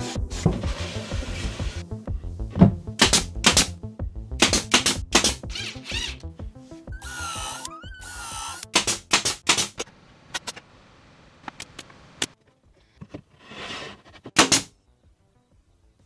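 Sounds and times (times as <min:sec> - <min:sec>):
nail gun firing: 0:04.4 - 0:05.4, 0:08.7 - 0:09.8, 0:14.4 - 0:14.7.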